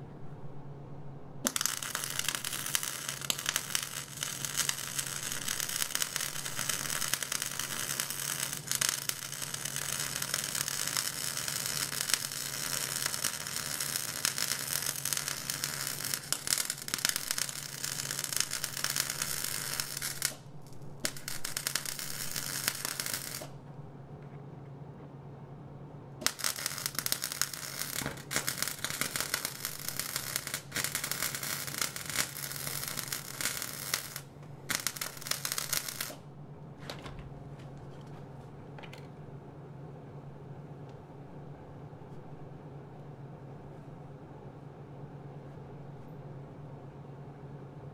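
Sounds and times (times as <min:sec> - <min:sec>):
steady low hum: 0:00.0 - 0:47.9
arc welding crackle: 0:01.4 - 0:23.6, 0:26.2 - 0:36.3.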